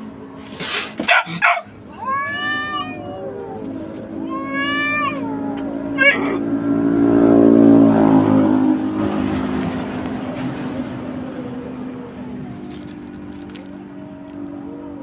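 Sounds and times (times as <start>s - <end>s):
cat yowling: 1.0s - 7.1s
low hum: 2.6s - 14.7s.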